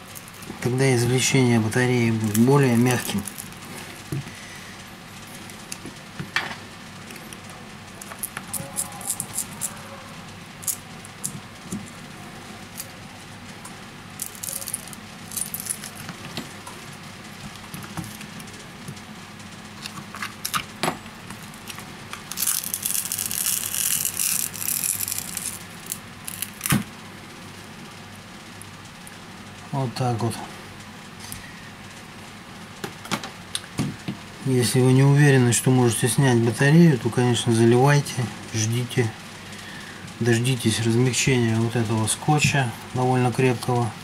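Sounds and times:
adhesive tape tearing crackle: 1.7s - 3.7s, 7.9s - 9.9s, 10.6s - 12.0s, 14.2s - 16.5s, 19.7s - 26.9s.

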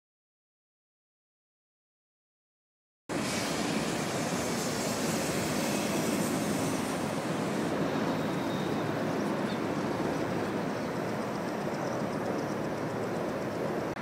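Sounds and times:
military aircraft flying overhead: 3.1s - 14.0s.

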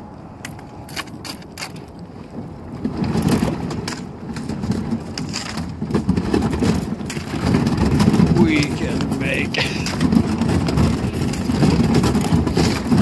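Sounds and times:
ice cracking and crunching: 3.0s - 13.0s.

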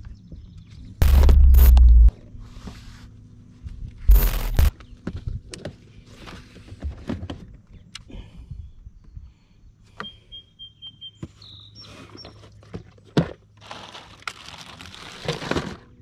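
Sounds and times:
higher tone: 1.0s - 2.1s
steady low hum: 1.0s - 6.0s
gear knocking and rattling: 4.1s - 4.7s.

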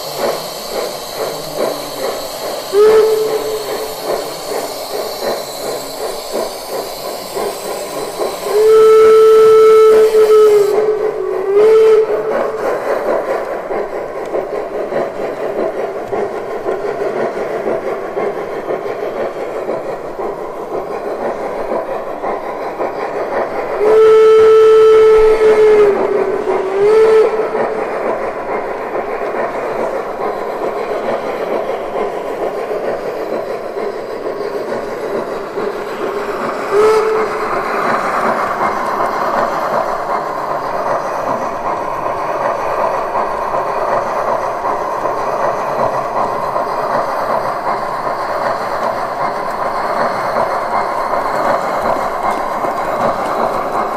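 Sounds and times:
model steam running hiss: 0.0s - 53.9s
steam whistle blasts: 2.0s - 5.7s, 7.8s - 12.8s, 23.8s - 28.0s, 36.2s - 38.1s.

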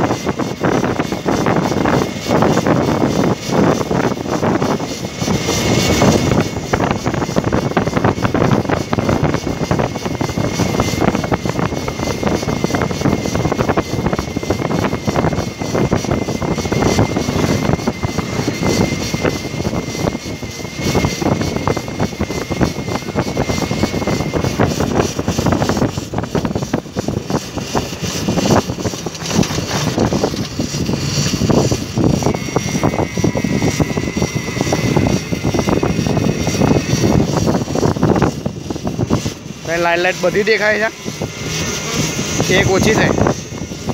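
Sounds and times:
electric motor whine: 0.0s - 43.9s
wind on microphone: 0.0s - 43.9s
tyre noise on paved road: 27.2s - 33.9s.

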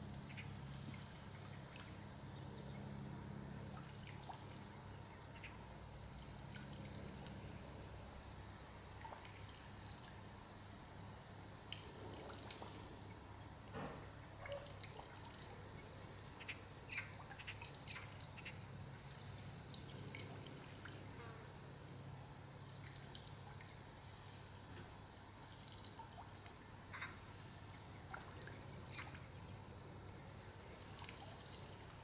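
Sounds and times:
faint low hum: 0.0s - 32.0s.

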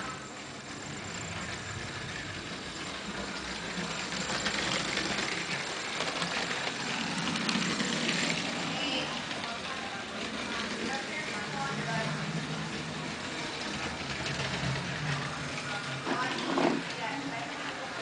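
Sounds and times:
toy train motor whirring: 0.0s - 18.0s
wheels clicking on plastic track: 0.0s - 18.0s.

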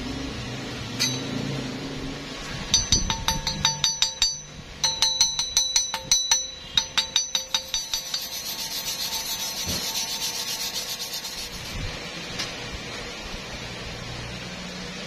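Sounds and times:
hammer tapping on steel weld: 1.0s - 1.3s, 2.7s - 9.9s
wire brush scrubbing metal: 2.7s - 12.1s.

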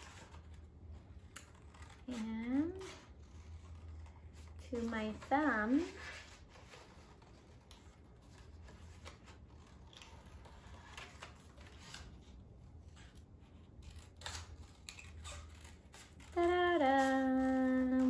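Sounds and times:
scissors snipping paper: 1.2s - 4.1s, 12.9s - 18.0s
woman humming: 16.3s - 18.0s.

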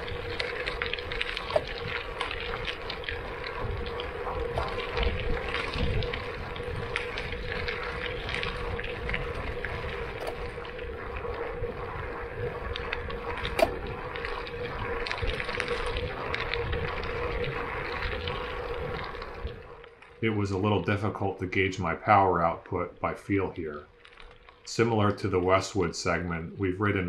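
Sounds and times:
small rattles and clicks: 0.0s - 20.2s, 23.8s - 24.8s
bike tyres on gravel: 0.0s - 27.0s
wind: 0.0s - 27.0s.

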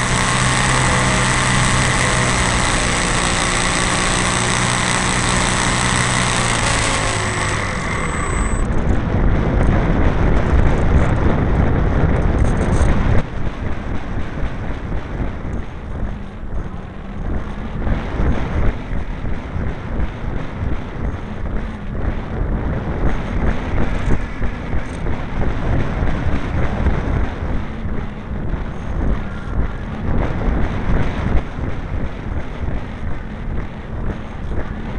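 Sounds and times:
model plane engine: 0.0s - 8.8s
wind rushing over microphone: 0.0s - 34.9s.

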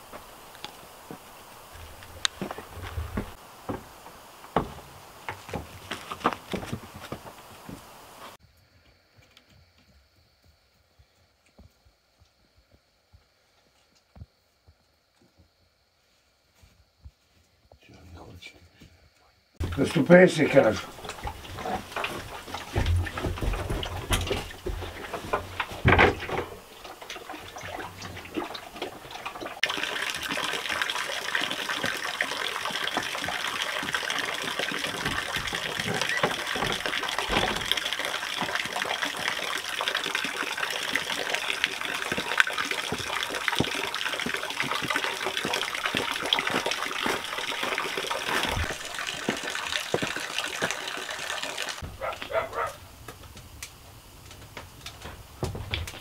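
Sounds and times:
running water rushing: 0.0s - 8.4s, 19.6s - 52.8s.

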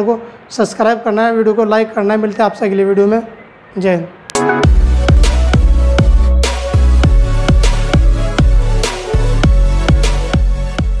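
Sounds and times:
electronic music with kick drum: 4.3s - 11.0s.

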